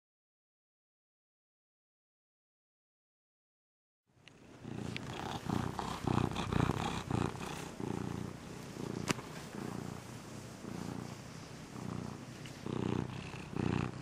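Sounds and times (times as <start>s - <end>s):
cat purring: 4.2s - 14.0s.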